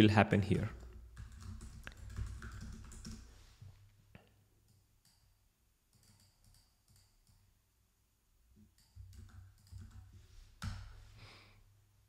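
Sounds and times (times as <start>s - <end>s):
keyboard and mouse clicking: 0.8s - 3.2s, 4.7s - 5.3s, 5.9s - 7.5s, 8.7s - 10.9s.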